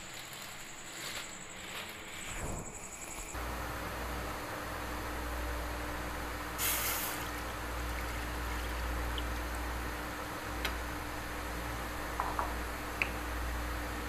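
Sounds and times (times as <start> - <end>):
steady low hum: 0.0 - 14.0
short burst of hiss: 6.6 - 7.3.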